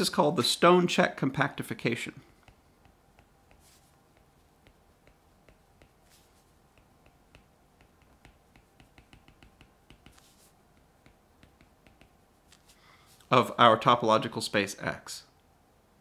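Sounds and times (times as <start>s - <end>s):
stylus clicking on tablet: 2.4s - 12.6s
stylus scratchy strokes: 2.4s - 13.3s.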